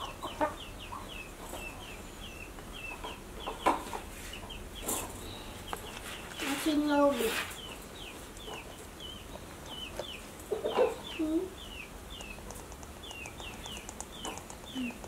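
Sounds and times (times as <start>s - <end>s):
birds chirping: 0.0s - 15.0s
low bird cluck: 0.0s - 15.0s.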